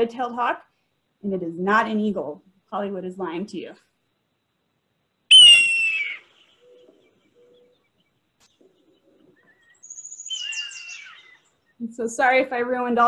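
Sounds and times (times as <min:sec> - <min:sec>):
hawk scream: 0:05.3 - 0:06.4, 0:10.3 - 0:11.4.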